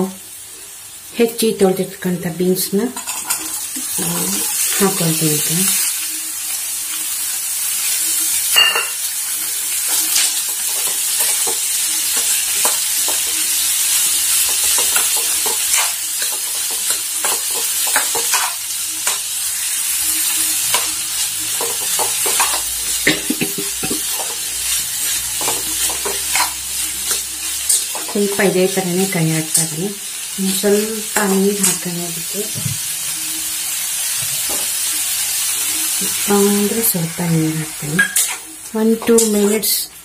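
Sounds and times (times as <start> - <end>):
beans sizzling in hot oil: 0.0 - 40.0
metal spoon scraping pan: 25.4 - 28.4, 38.0 - 39.5.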